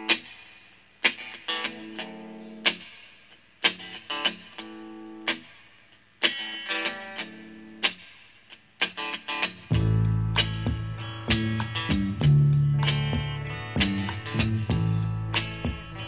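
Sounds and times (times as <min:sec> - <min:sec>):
electric guitar chord stabs: 0:09.3 - 0:16.0.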